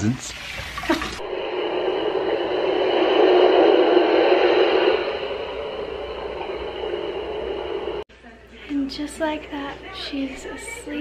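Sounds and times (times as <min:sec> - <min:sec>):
steady rushing hiss: 0:00.0 - 0:08.1.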